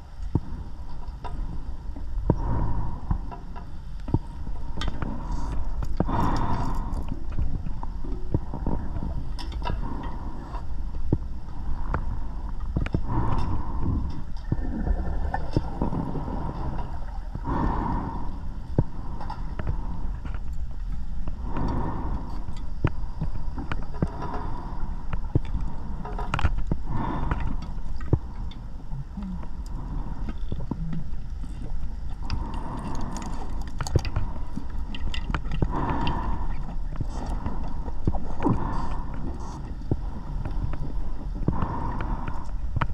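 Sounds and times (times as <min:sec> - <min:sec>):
steady low rumble: 0:00.0 - 0:42.9
underwater bubbles gurgling: 0:13.2 - 0:20.0.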